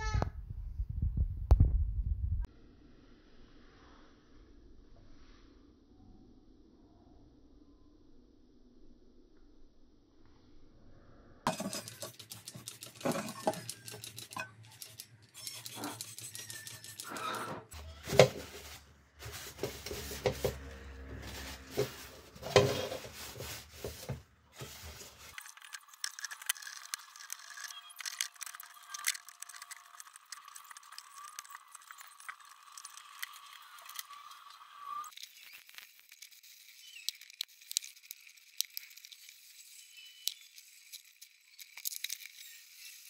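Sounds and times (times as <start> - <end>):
metal parts clinking: 11.5 - 17.2
rubbing and scraping metal: 11.5 - 34.5.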